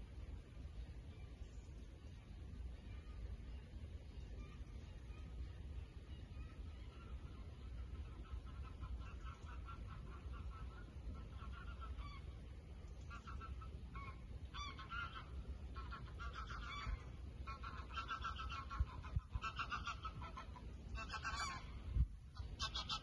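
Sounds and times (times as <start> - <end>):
geese honking: 6.1 - 21.8, 22.4 - 23.0.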